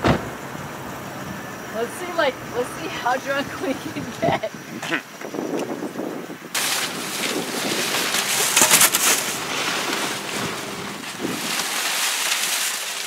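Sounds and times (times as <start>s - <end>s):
plastic bags crinkling: 6.6s - 13.0s.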